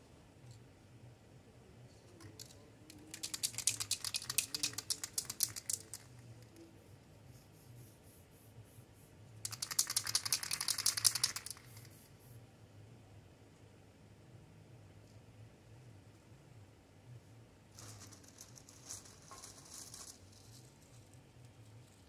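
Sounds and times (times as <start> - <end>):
spray can ball rattling: 2.9 - 6.1, 9.4 - 12.0.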